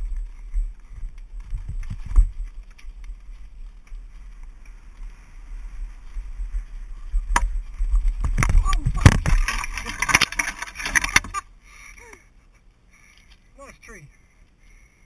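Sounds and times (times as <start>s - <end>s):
wind buffeting microphone: 0.0s - 10.1s
heavy thumps of bike on bumps: 0.0s - 11.4s
bike rattling over dirt: 0.0s - 11.5s.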